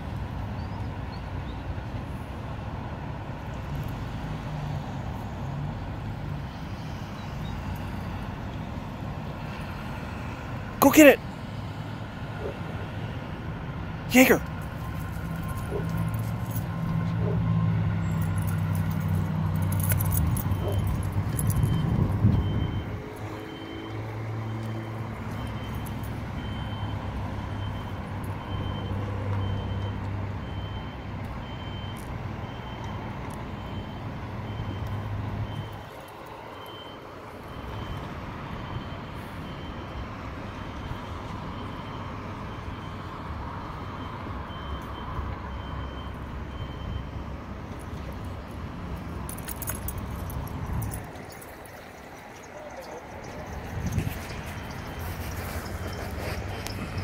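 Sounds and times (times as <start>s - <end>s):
diesel engine hum: 0.0s - 57.0s
reversing alarm beeping: 20.0s - 48.2s.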